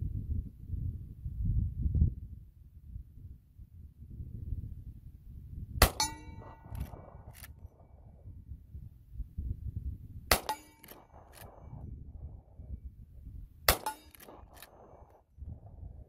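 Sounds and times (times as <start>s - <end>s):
metallic ringing: 5.8s - 7.4s, 10.3s - 11.5s, 13.7s - 14.6s
rifle shots: 5.8s - 8.1s, 10.3s - 11.8s, 13.7s - 15.2s.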